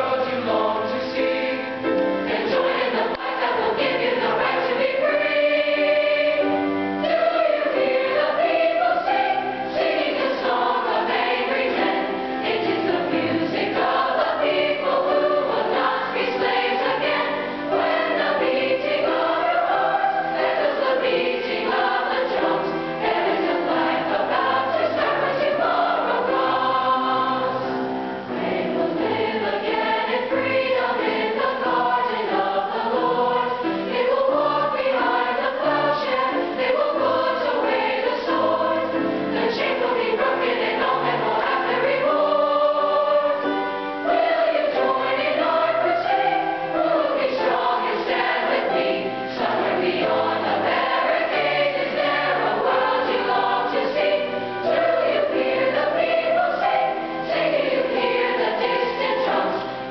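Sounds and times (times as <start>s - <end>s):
children's choir singing: 0.0s - 59.9s
grand piano accompaniment: 0.0s - 59.9s.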